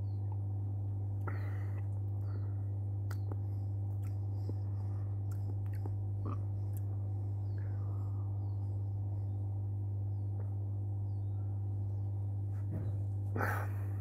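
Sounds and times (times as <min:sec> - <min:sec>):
steady low hum: 0:00.0 - 0:14.0
wet mouth sounds: 0:03.1 - 0:04.7, 0:05.3 - 0:06.9.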